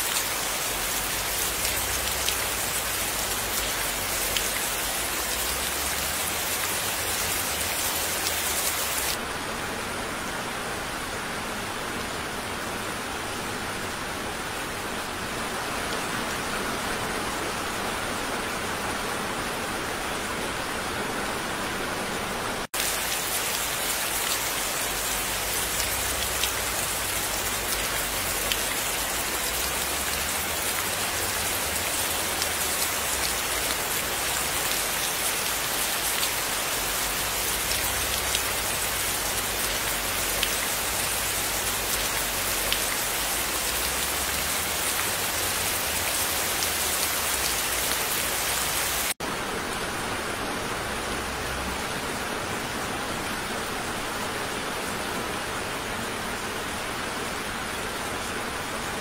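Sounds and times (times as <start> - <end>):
rain splashing into standing water: 0.0 - 9.2, 22.7 - 49.2
steady rain falling: 0.0 - 59.0.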